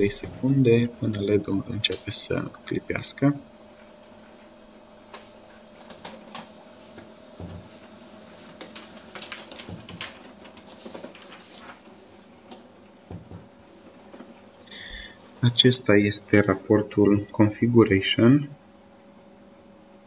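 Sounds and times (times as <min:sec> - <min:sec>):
paper feed clicks and knocks: 0:05.1 - 0:13.5.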